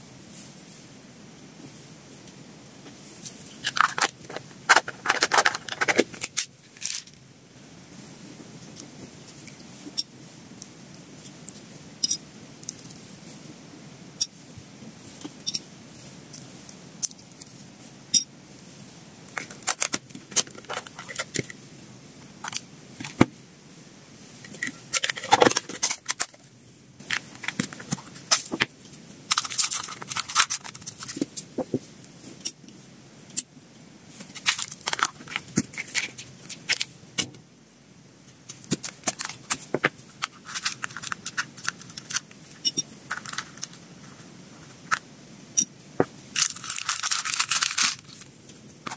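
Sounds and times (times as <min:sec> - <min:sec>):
plastic food box opened: 0:03.6 - 0:07.0
packaging crinkling: 0:03.6 - 0:07.2, 0:29.3 - 0:31.2, 0:34.4 - 0:36.9, 0:38.6 - 0:42.3, 0:43.1 - 0:43.8, 0:46.4 - 0:48.9.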